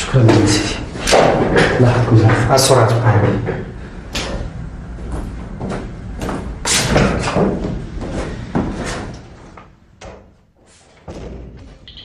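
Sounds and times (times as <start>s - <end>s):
footsteps on hard floor: 4.9s - 12.0s.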